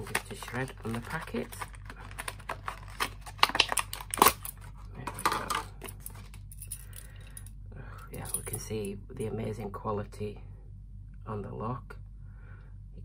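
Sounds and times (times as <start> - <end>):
plastic packaging crackling: 0.0 - 6.5.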